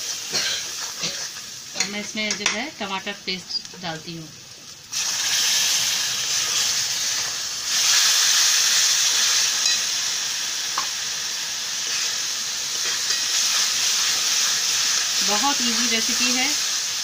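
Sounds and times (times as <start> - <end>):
paste sizzling in hot oil: 0.0 - 17.0.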